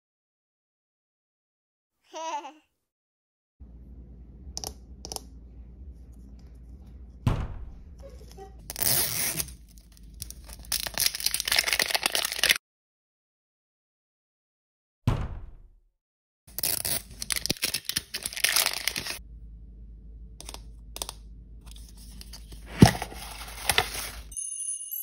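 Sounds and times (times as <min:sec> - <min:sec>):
plastic wrapping crinkling: 0:09.6 - 0:12.6, 0:16.5 - 0:19.2.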